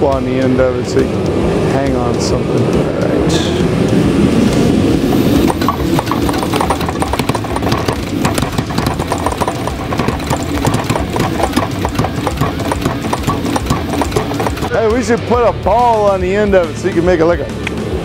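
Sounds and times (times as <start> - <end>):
power hammer striking hot steel: 3.3 - 16.0.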